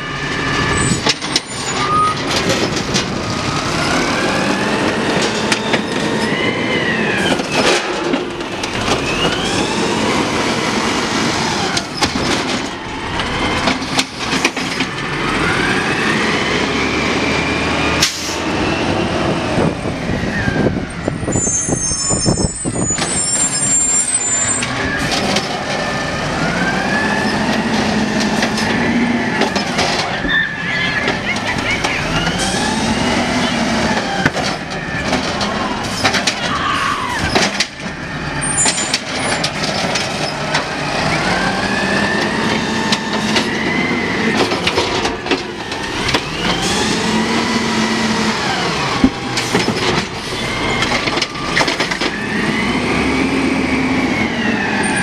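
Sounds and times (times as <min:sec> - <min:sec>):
diesel engine revving: 0:00.0 - 0:55.0
carts clanking: 0:00.1 - 0:06.2
air brakes hissing: 0:18.0 - 0:18.5.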